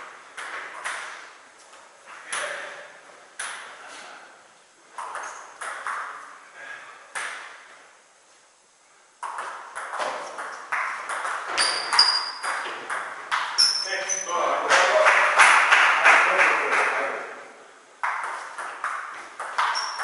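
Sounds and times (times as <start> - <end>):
table tennis ball hits echoing: 0.4 - 1.2, 3.4 - 3.7, 5.0 - 6.3, 9.2 - 13.8, 18.0 - 20.0.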